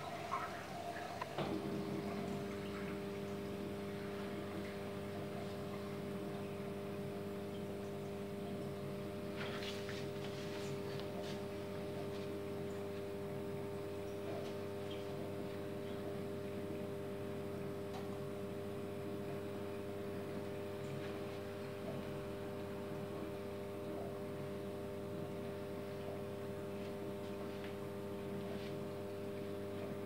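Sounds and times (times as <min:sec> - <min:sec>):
water trickling and splashing: 0:00.0 - 0:18.2
washing machine humming: 0:00.0 - 0:30.0.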